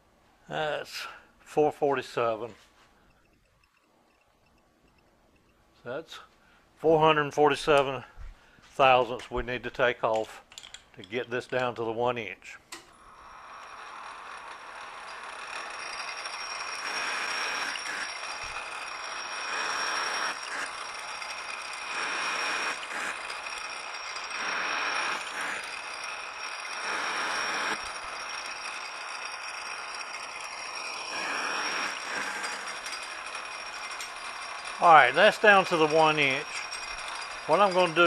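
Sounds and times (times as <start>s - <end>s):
lathe cutting hiss: 13.0s - 38.0s
metal lathe whining: 13.0s - 38.0s.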